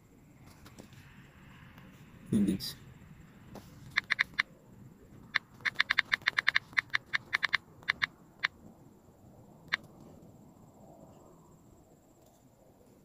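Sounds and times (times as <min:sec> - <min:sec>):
phone keyboard clicks: 0:03.9 - 0:04.5, 0:05.3 - 0:08.5.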